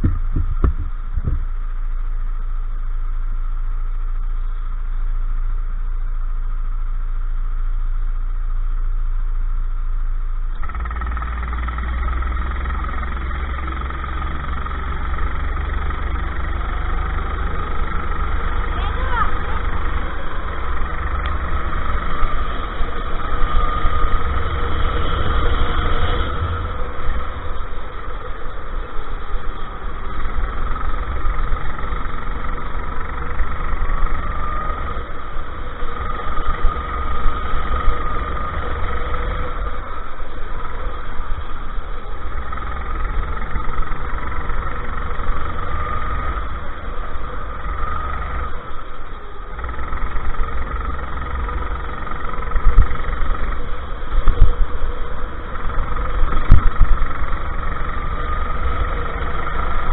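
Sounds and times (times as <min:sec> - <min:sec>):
sharp knocks: 0:00.0 - 0:01.5
go-kart engine revving: 0:00.0 - 0:07.6, 0:10.4 - 0:59.9
heavy low rumble: 0:00.0 - 0:59.9.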